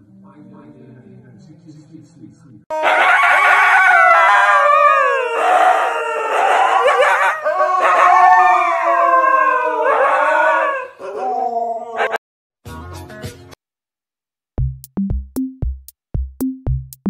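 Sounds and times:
husky howling: 2.8s - 12.2s.

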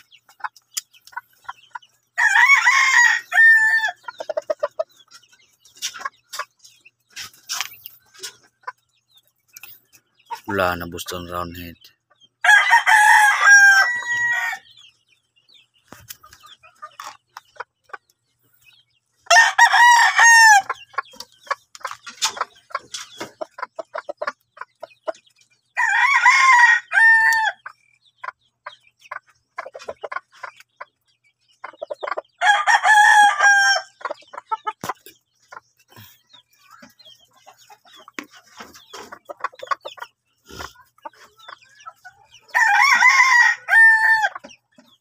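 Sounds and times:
roosters crowing: 2.2s - 4.0s, 12.4s - 14.7s, 19.3s - 20.8s, 25.8s - 27.7s, 32.4s - 34.0s, 42.4s - 44.4s.

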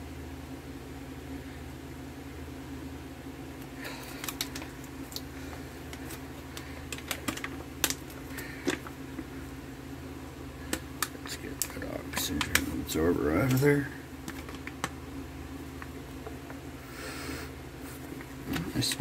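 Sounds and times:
food pouch crinkling: 3.8s - 9.0s, 13.5s - 15.0s.

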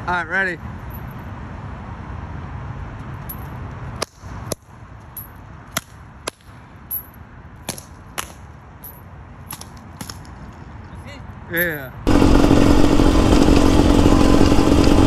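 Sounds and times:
steady low rumble: 12.1s - 15.0s.

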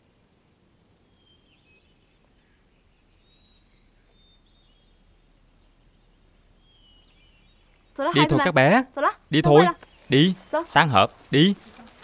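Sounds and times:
faint high bird chirps: 1.0s - 8.8s.

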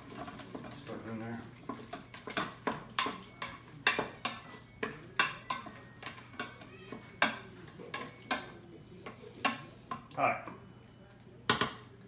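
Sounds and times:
wooden spoon scraping metal pot: 0.0s - 10.6s
spoon knocking against pot: 1.7s - 10.6s, 11.5s - 11.8s.

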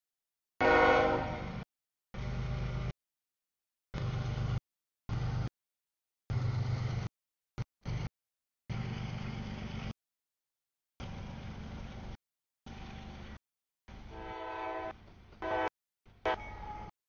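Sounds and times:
freight train rumble: 0.6s - 1.6s, 2.2s - 2.9s, 11.0s - 15.7s
locomotive air horn blasts: 0.6s - 1.6s, 14.1s - 16.5s.

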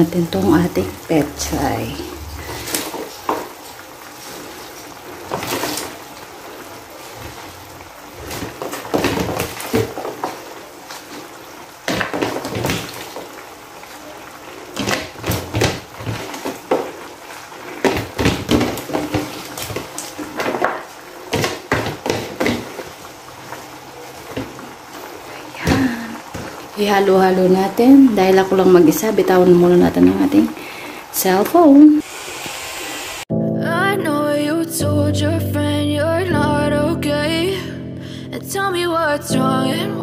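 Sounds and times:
simmering hiss: 0.0s - 8.8s, 23.0s - 33.3s
leaves rustling in a pan: 0.0s - 33.2s.

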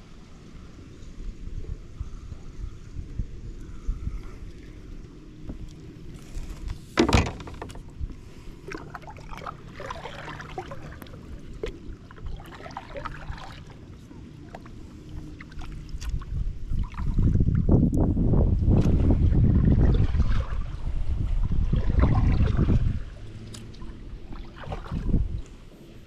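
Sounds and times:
wind on microphone: 0.6s - 8.4s, 15.2s - 26.0s
water splashes and clicks: 8.7s - 13.8s, 14.5s - 18.0s, 18.6s - 19.1s, 21.8s - 25.6s.

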